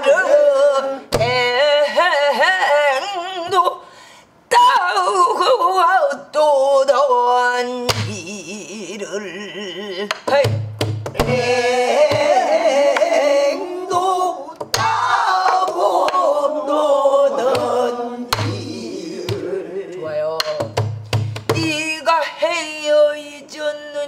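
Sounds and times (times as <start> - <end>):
woman singing with vibrato: 0.0 - 20.8, 21.5 - 24.0
drum palm thumps: 10.2 - 13.2, 17.5 - 19.5, 20.4 - 21.8
drum stick strikes: 18.3 - 18.6, 20.4 - 21.7.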